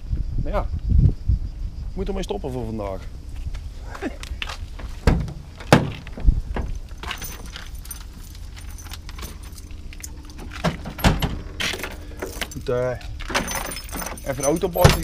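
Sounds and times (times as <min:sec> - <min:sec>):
sharp knocks on truck door: 0:05.0 - 0:06.7
metallic jangle of keys: 0:06.8 - 0:15.0.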